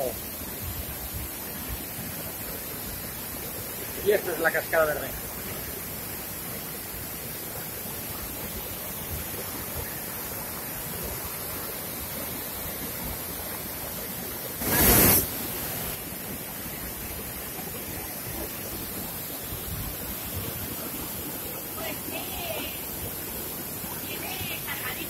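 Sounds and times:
stream rapids: 0.0s - 25.0s
waterfall rushing: 0.0s - 25.0s
loud burst of noise: 14.6s - 16.0s.

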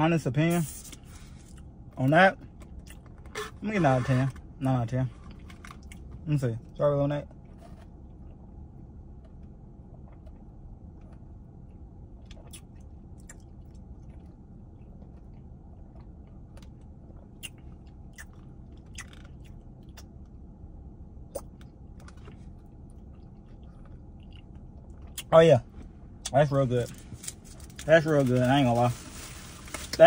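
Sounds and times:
low hum: 0.0s - 30.0s
person chewing: 2.5s - 3.5s, 12.2s - 20.4s, 21.3s - 25.3s.

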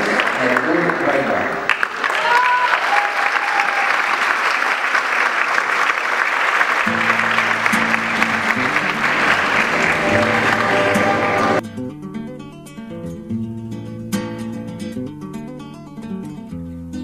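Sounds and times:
audience applauding: 0.0s - 11.6s
acoustic guitar music: 6.8s - 17.0s.

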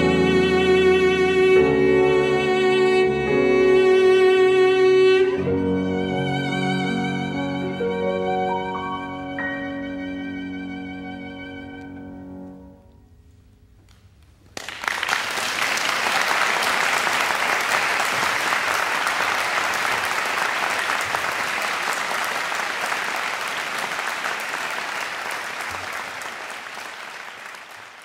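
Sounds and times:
audience applause: 14.5s - 28.0s.

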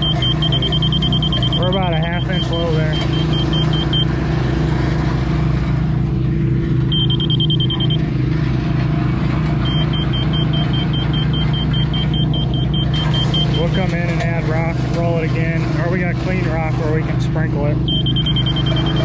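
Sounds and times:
backup alarm beeping: 0.0s - 4.2s, 6.8s - 8.1s, 9.6s - 14.2s, 17.8s - 19.0s
diesel engine running: 0.0s - 19.0s.

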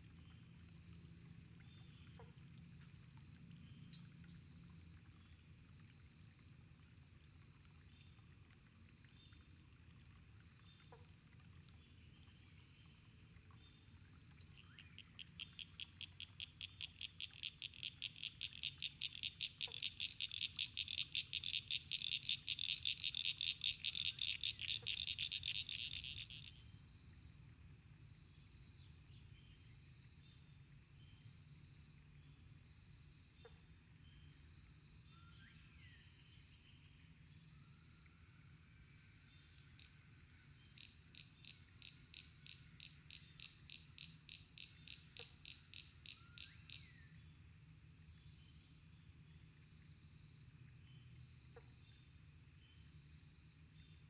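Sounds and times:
faint frog calls: 0.1s - 29.6s, 30.2s - 48.9s, 49.6s - 54.0s
frog trilling: 14.7s - 26.6s, 40.8s - 46.9s.

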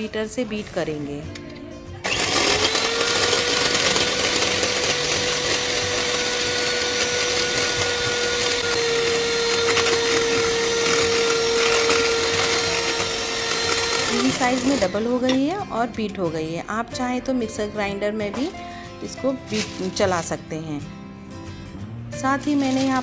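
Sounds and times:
electric hand mixer whining: 2.0s - 15.3s.

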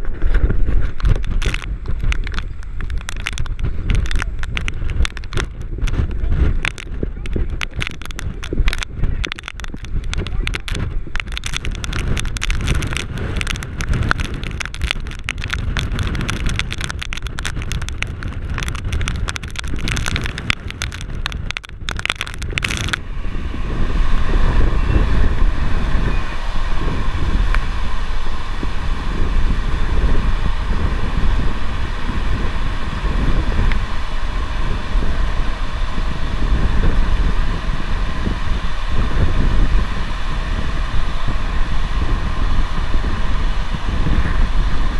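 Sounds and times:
crackling: 0.0s - 23.0s
gusty wind buffeting microphone: 0.0s - 44.9s
vehicle engine and road noise: 0.0s - 44.9s
wind against car: 0.0s - 44.9s.

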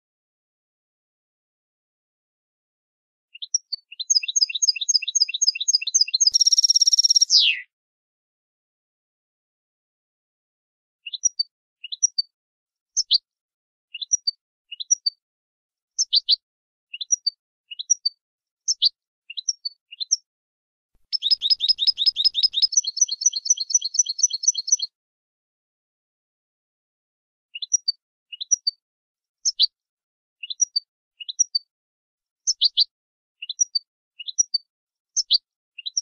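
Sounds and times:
goldfinch chirping calls: 3.4s - 7.6s, 21.1s - 24.9s, 29.4s - 29.7s, 35.2s - 36.0s
goldfinch rattling trill: 4.1s - 7.6s, 21.1s - 24.8s.

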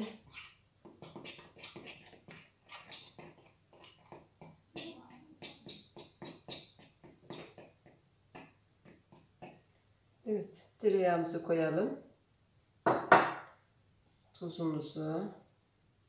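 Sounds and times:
utensil stirring flour in glass bowl: 0.0s - 9.6s.

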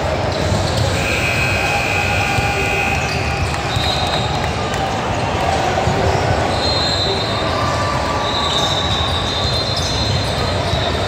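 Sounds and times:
crowd chatter: 0.0s - 11.0s.

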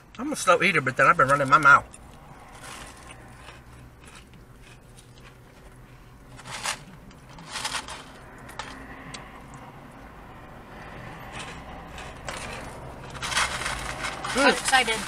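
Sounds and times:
chewing crunchy fried food: 1.2s - 9.6s.

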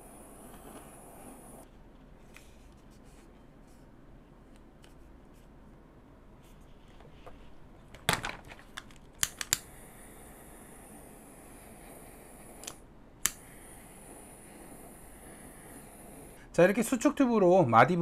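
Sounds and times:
steady high hiss: 0.0s - 1.7s, 9.2s - 18.0s.

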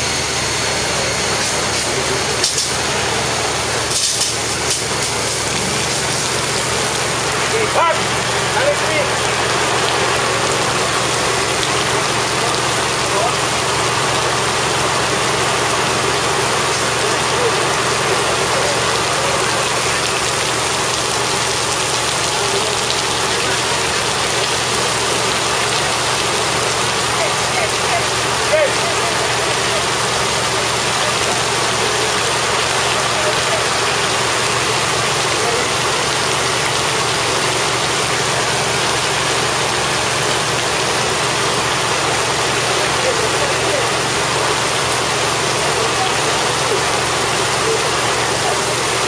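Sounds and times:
engine humming: 0.0s - 49.0s
heavy rain on corrugated roof: 0.0s - 49.0s
water jet hissing: 0.0s - 49.0s.

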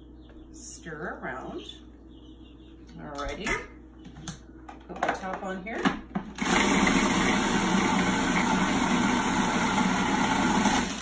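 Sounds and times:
food processor chopping: 6.4s - 11.0s.

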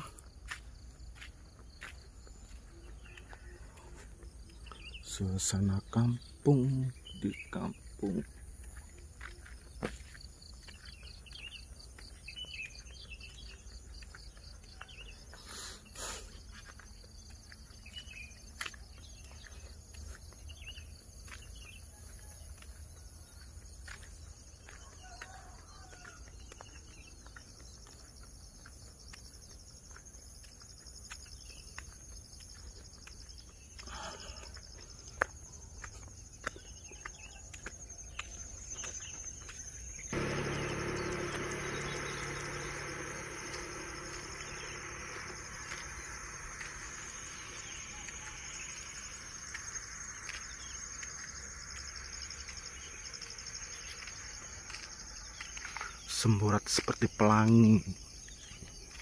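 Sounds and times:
bird chirps: 0.0s - 59.0s
high insect hiss: 38.5s - 59.0s.

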